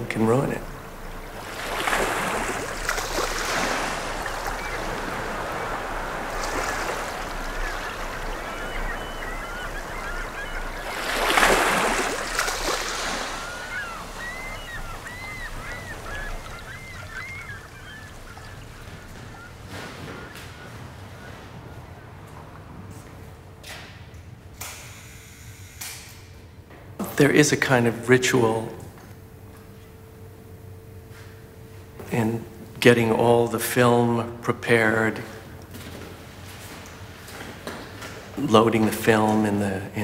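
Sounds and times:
birds chirping: 0:00.0 - 0:23.7
waves washing on shore: 0:00.7 - 0:21.9.

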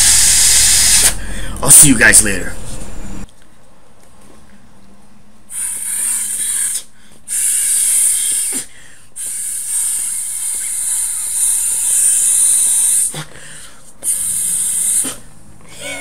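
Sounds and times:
breath blowing through ball valve: 0:05.5 - 0:16.0.

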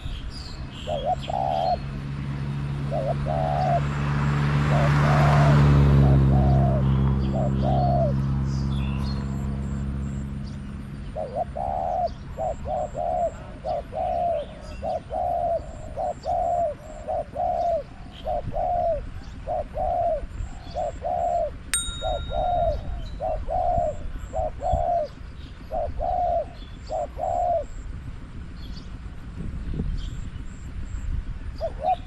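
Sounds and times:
doves cooing: 0:00.8 - 0:01.9, 0:02.8 - 0:03.9, 0:11.1 - 0:21.6, 0:22.2 - 0:27.8.

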